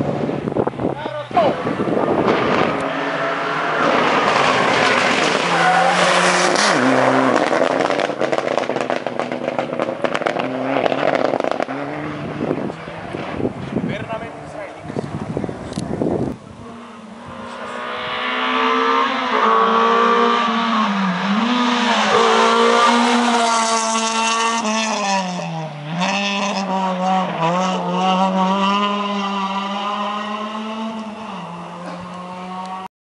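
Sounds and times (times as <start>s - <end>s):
rally car engine revving: 0.0s - 32.9s.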